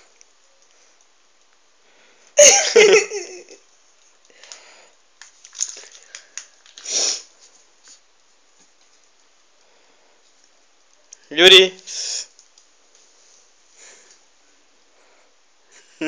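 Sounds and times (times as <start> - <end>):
person laughing: 2.4 - 3.6.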